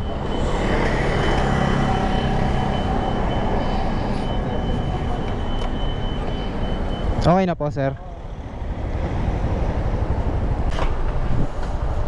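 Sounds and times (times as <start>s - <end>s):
road noise: 0.0s - 12.0s
wind noise: 8.2s - 12.0s.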